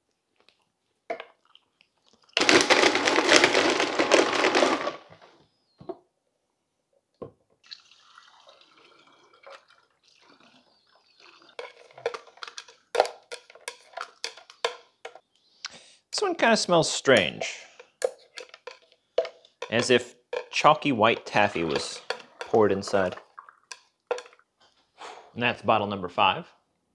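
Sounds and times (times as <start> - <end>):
liquid trickling into bottle: 7.6 - 12.3, 21.6 - 24.4.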